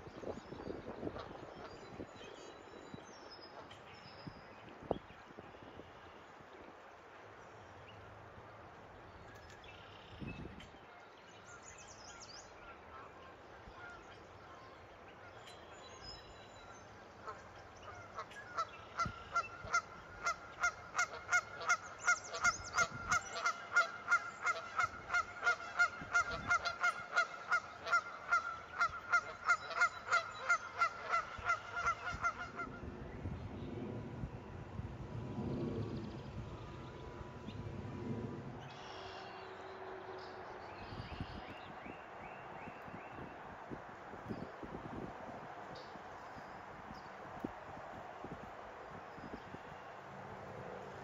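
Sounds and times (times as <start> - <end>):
goose honking: 17.2 - 32.7.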